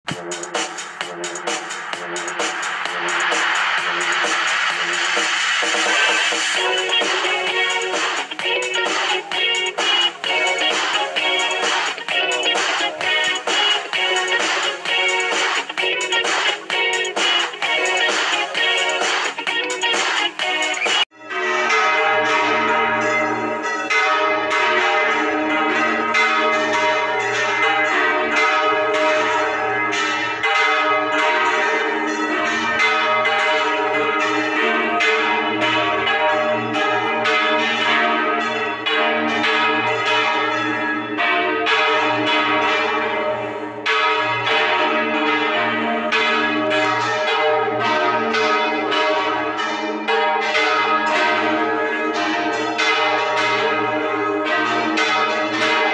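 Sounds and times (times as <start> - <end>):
church bells pealing: 0.1 - 55.9.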